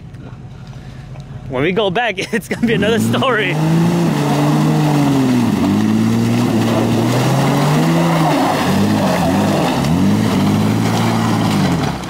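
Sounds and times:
suv engine revving: 2.5s - 12.0s.

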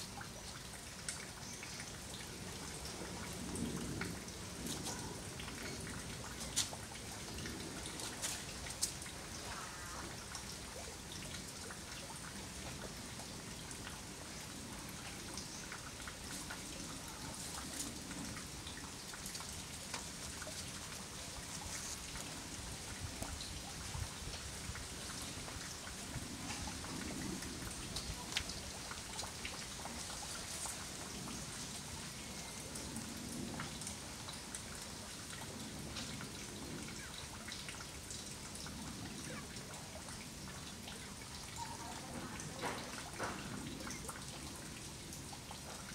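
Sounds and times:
steady outdoor hiss: 0.0s - 45.9s.

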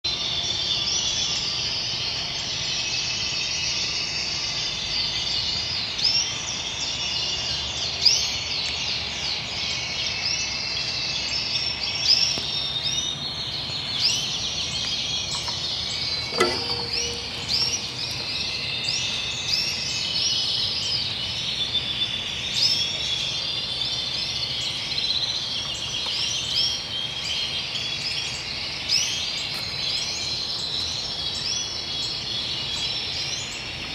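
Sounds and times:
canaries singing: 0.0s - 33.9s
single knock: 16.3s - 18.2s.

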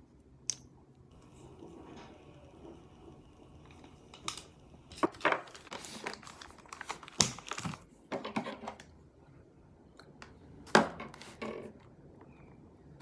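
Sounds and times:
plastic packaging crinkling: 5.0s - 7.9s.

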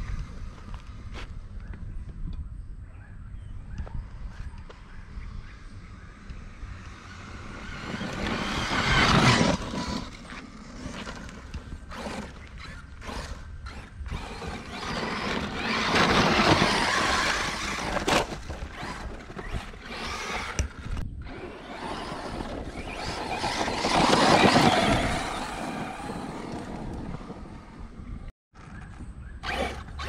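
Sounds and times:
tyres churning through dirt: 4.4s - 30.0s
electric motor running: 11.8s - 27.3s.

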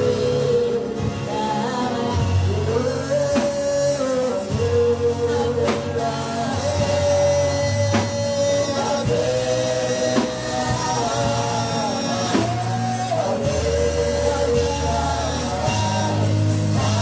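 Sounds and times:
band playing: 0.0s - 17.0s
man singing: 0.0s - 17.0s
woman singing: 0.0s - 17.0s.

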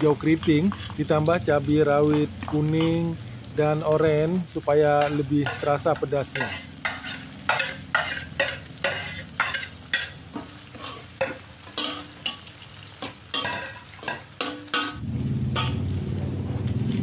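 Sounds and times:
metal spatula scraping a wok: 0.0s - 1.2s, 2.1s - 3.1s, 5.0s - 16.0s
food sizzling in a wok: 0.0s - 17.0s.

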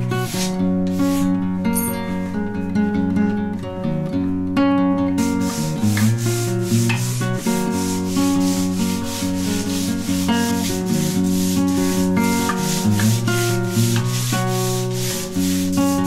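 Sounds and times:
hand rubbing wooden plane: 0.0s - 2.0s, 5.2s - 16.0s
background guitar music: 0.0s - 16.0s.

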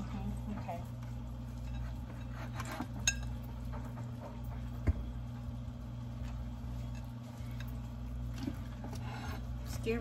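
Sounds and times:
forks clinking in ceramic bowls: 1.5s - 3.8s, 6.2s - 7.9s.

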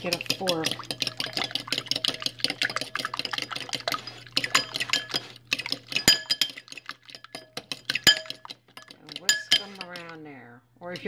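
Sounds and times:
liquid sloshing: 0.0s - 10.3s
fork beating eggs in bowl: 0.0s - 11.0s.

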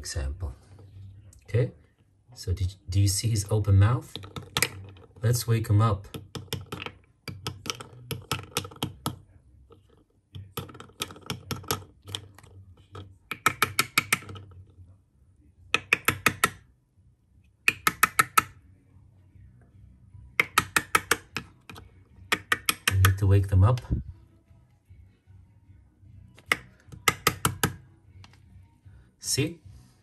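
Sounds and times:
mussel shell tapping: 4.1s - 5.2s, 6.0s - 14.7s, 15.7s - 16.6s, 17.6s - 18.6s, 20.4s - 23.3s, 26.4s - 28.4s.

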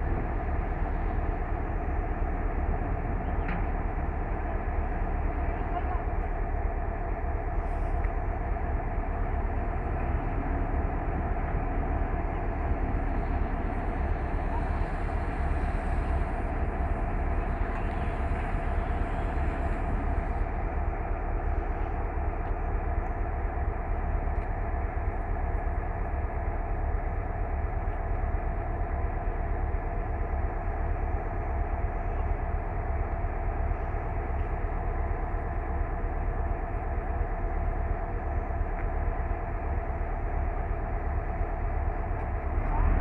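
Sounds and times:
diesel locomotive idling: 0.0s - 43.0s.

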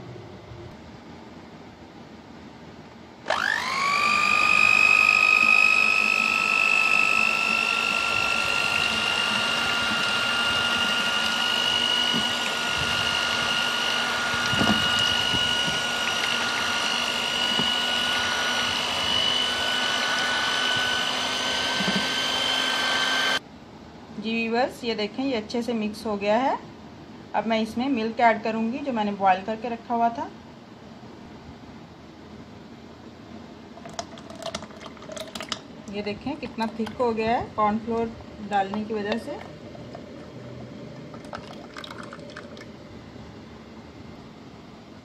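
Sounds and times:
electric hand mixer whine: 3.3s - 23.4s, 41.0s - 42.7s
beaters whisking liquid: 5.4s - 22.8s, 33.8s - 37.3s, 37.9s - 42.8s.

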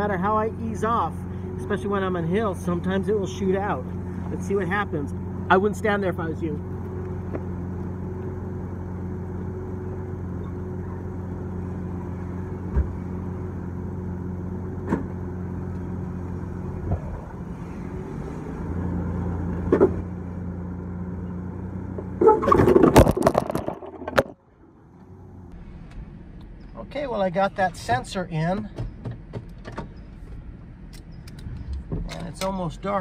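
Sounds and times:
pickup engine idling: 0.0s - 22.4s.

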